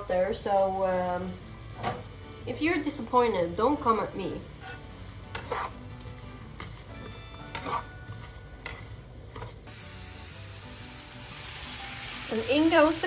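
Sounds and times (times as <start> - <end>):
vegetables sizzling in frying pan: 9.6 - 13.0.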